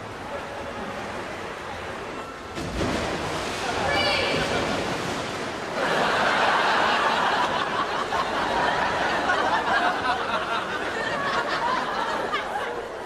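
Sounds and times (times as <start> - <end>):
studio audience laughing: 5.8 - 13.0.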